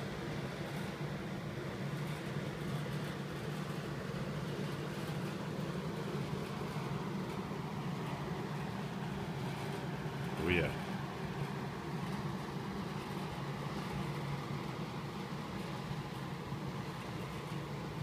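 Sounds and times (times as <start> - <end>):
low mechanical hum: 0.0 - 18.0.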